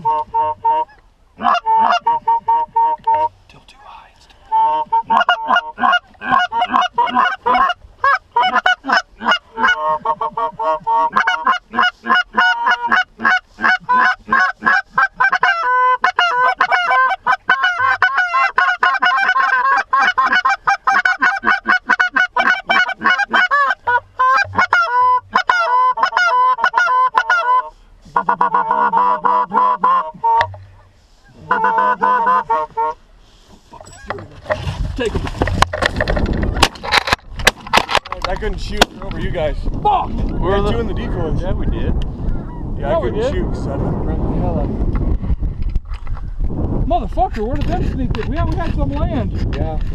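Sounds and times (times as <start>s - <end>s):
goose honking: 0.0s - 3.3s, 4.5s - 33.0s.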